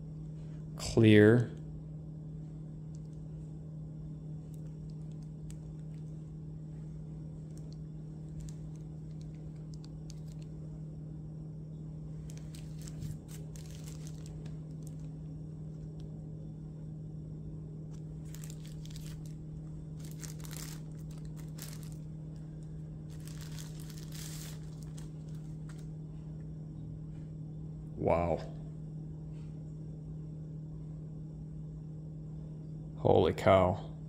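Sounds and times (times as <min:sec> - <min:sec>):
steady low hum: 0:00.0 - 0:34.0
plastic wrapping crinkling: 0:04.5 - 0:06.2, 0:07.4 - 0:10.6, 0:12.2 - 0:15.2, 0:17.9 - 0:25.9.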